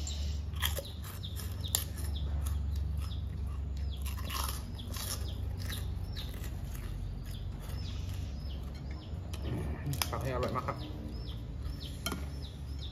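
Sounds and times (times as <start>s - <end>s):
crunchy chewing: 0.0s - 12.9s
crackers snapping: 0.6s - 7.5s, 9.8s - 10.6s.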